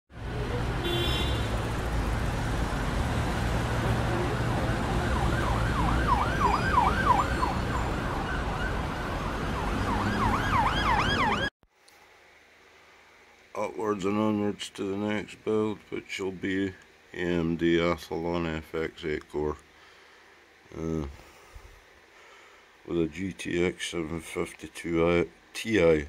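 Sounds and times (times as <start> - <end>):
traffic rumble: 0.1 - 11.5
emergency vehicle siren: 2.6 - 11.5.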